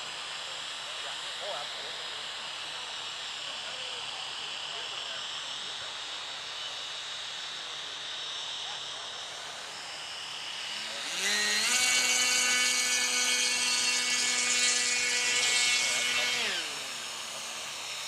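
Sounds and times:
model plane electric motor whine: 0.0 - 18.0.

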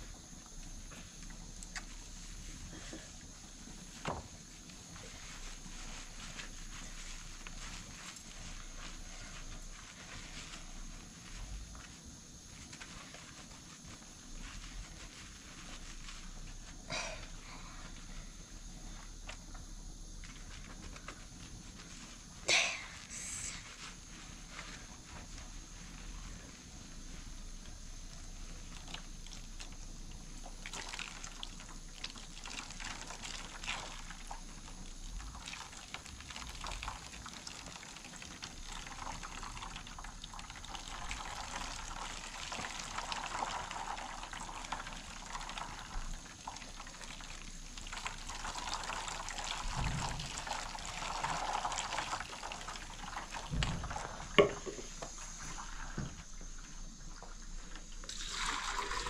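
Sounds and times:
water splashing into plastic basin: 47.9 - 56.3, 57.1 - 59.0.

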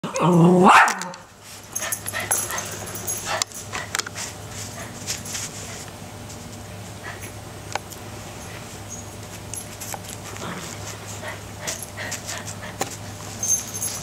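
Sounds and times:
puppy yelping bark: 0.6 - 1.2.

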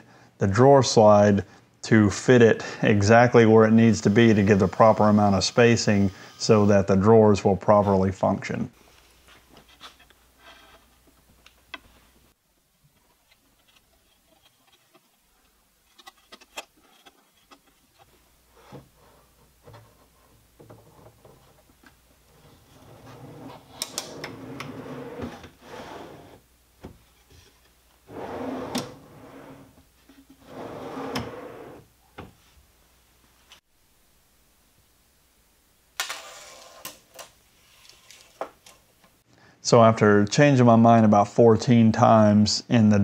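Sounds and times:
drawer rolling on metal slides: 22.3 - 26.4, 28.0 - 29.8, 30.4 - 31.9.

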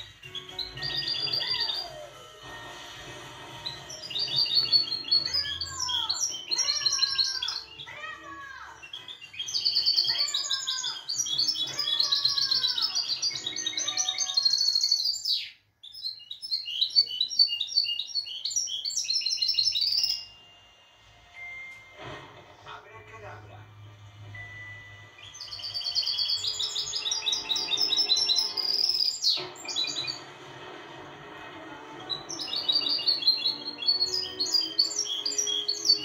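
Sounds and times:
songbird twittering and whistling: 0.0 - 2.2, 3.6 - 7.9, 8.8 - 20.6, 24.4 - 30.2, 32.1 - 36.0.

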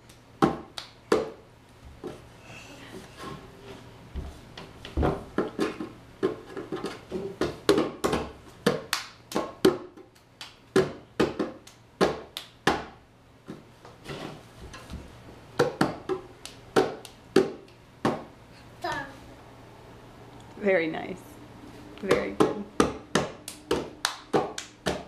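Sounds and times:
child slapping bongo drums: 4.2 - 15.0, 15.6 - 19.1, 22.0 - 25.0.

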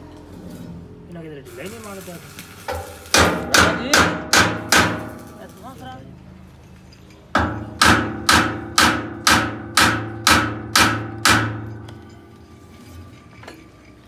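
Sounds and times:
hammer striking steel pulley: 2.7 - 5.2, 7.4 - 12.2.

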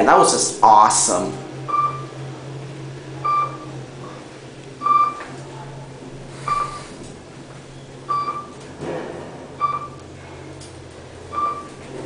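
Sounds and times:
elevator car humming: 0.0 - 12.0
elevator chime beep: 1.6 - 2.3, 3.1 - 3.9, 4.8 - 5.4, 6.4 - 6.8, 7.6 - 8.7, 9.6 - 10.1, 11.2 - 11.9.

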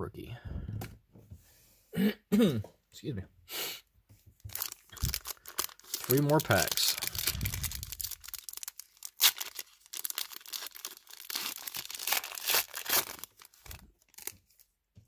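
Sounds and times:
foil wrapper tearing and crinkling: 4.5 - 14.6.

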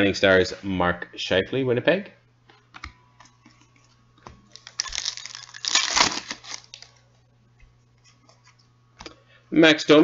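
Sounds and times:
card pack rustling and crinkling: 4.5 - 7.0.

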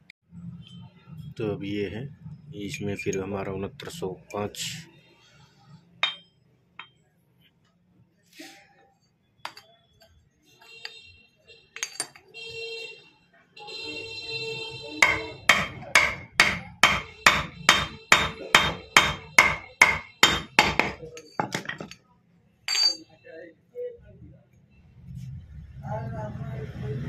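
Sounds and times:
hammer striking steel: 6.0 - 6.9, 15.0 - 22.0.

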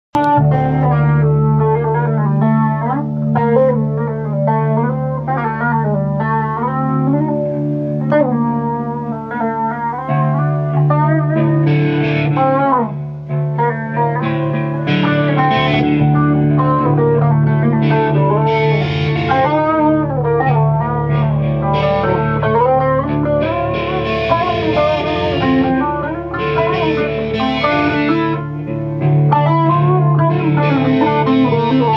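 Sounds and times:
acoustic guitar strumming: 0.2 - 31.9
electric guitar bending notes: 0.2 - 31.9
steady low drone: 14.2 - 31.9.

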